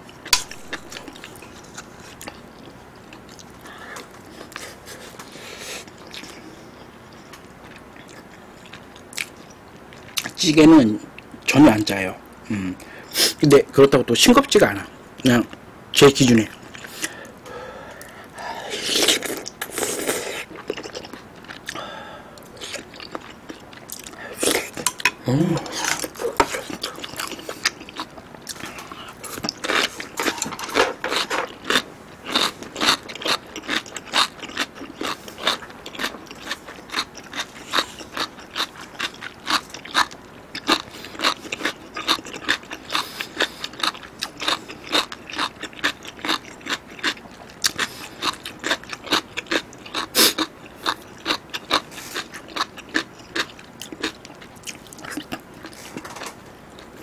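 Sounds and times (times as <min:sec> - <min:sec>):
close chewing with mouth clicks: 0:18.8 - 0:21.8, 0:22.4 - 0:57.0
person humming: 0:25.2 - 0:26.5.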